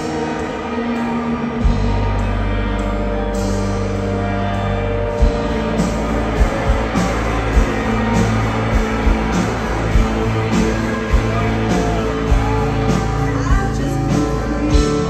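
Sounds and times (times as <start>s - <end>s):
electric guitar: 0.0s - 15.0s
heavy bass line: 0.0s - 15.0s
drum hits: 5.2s - 12.8s.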